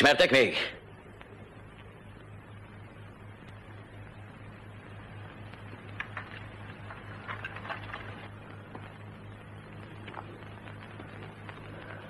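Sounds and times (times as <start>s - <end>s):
low hum and hiss: 0.0s - 12.0s
faint clicks and rustles: 4.8s - 12.0s.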